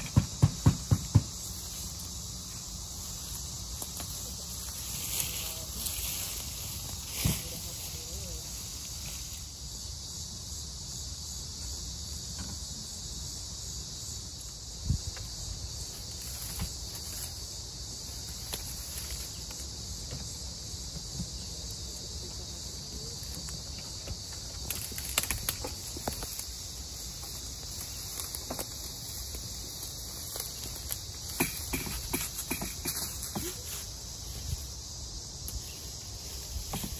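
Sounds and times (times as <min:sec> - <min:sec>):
insects chirring in grass: 0:00.0 - 0:36.9.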